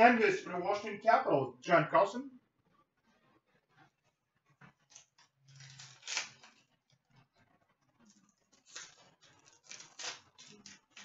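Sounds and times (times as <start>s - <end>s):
trading cards rustling and clicking: 8.1s - 11.0s.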